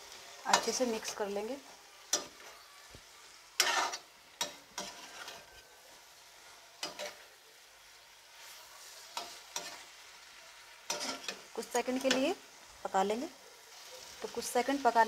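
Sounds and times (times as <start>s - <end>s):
faint sizzle from pan: 0.0s - 15.0s
metal spoon scraping a pan: 0.5s - 1.2s, 2.0s - 2.6s, 3.6s - 5.8s, 6.7s - 7.3s, 8.4s - 10.1s, 10.8s - 12.4s.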